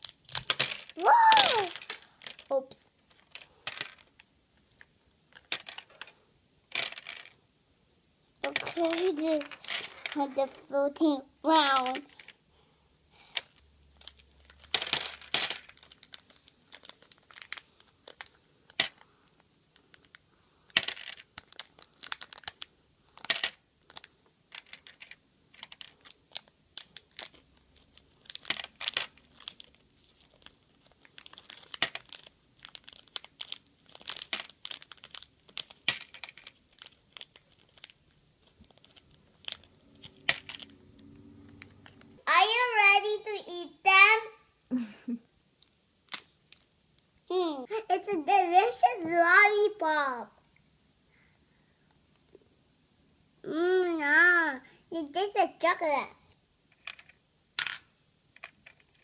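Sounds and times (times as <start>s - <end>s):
candy wrappers crinkling: 0.0s - 6.1s, 8.4s - 10.5s, 11.6s - 12.3s, 13.2s - 42.2s, 45.6s - 49.6s
jelly beans clicking on plastic: 0.0s - 6.1s, 13.3s - 42.1s.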